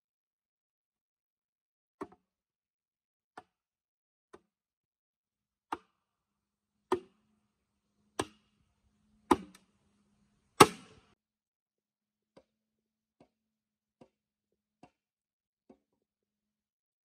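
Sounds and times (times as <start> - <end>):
hand tool chopping wood: 9.3 - 9.6, 10.6 - 11.1.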